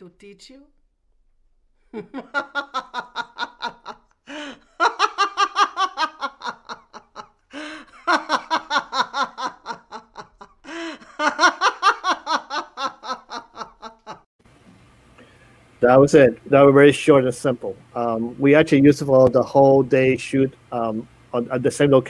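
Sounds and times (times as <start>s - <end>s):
woman laughing hard: 1.9s - 14.3s
gasping in-breaths: 4.2s - 4.7s, 7.5s - 8.0s, 10.6s - 11.1s.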